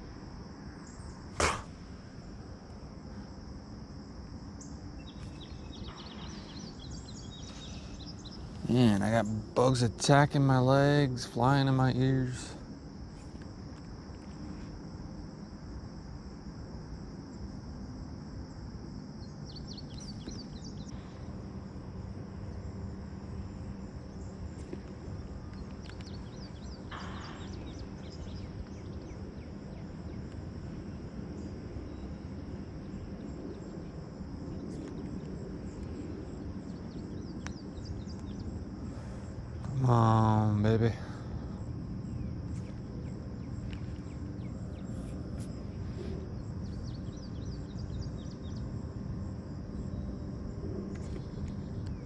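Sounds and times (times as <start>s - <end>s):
insects droning: 0.0s - 52.0s
bird chirping: 4.6s - 10.0s, 19.2s - 20.9s, 25.2s - 30.3s, 36.6s - 39.7s, 42.0s - 48.7s.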